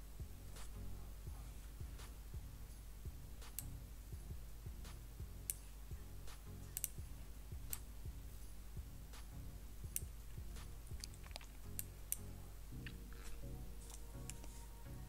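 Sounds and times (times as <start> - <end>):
faint background music: 0.0 - 15.0
knitting needles clicking: 2.0 - 3.8, 4.8 - 14.8.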